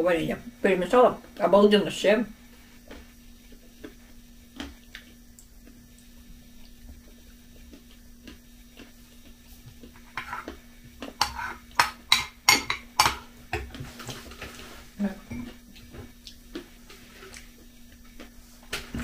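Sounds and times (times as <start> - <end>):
spoon clinking against ceramic bowl: 11.2 - 13.2.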